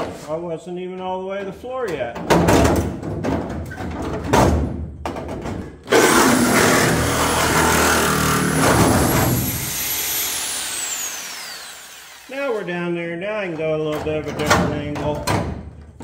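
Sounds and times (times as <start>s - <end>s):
reciprocating saw cutting sheet metal: 5.9s - 12.8s.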